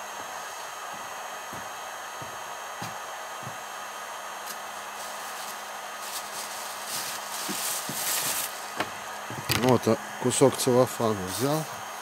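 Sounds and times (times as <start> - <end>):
heat gun fan blowing: 0.0 - 12.0
rustling and crinkling: 5.0 - 9.7.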